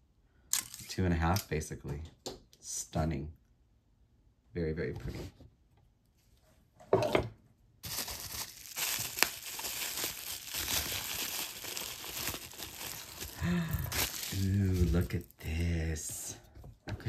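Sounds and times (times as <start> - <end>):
packaging crinkling: 7.8 - 15.4.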